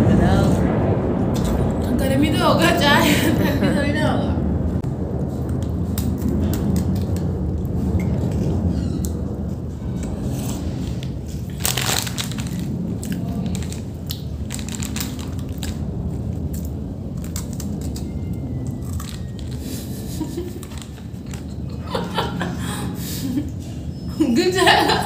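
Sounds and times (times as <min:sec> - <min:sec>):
low hum: 0:00.0 - 0:25.0
chewing and crunching food: 0:09.8 - 0:21.5.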